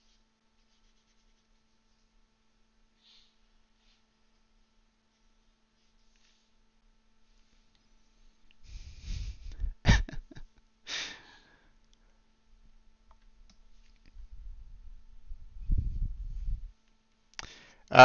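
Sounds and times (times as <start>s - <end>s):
breathing close to microphone: 8.6s - 9.8s, 17.4s - 17.9s.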